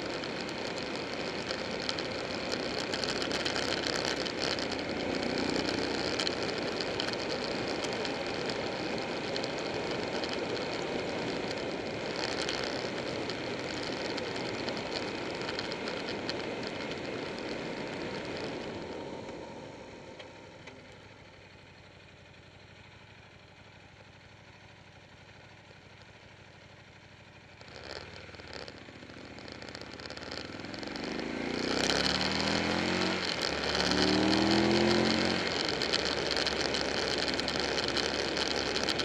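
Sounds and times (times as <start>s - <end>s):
motorcycle engine running: 0.0s - 39.0s.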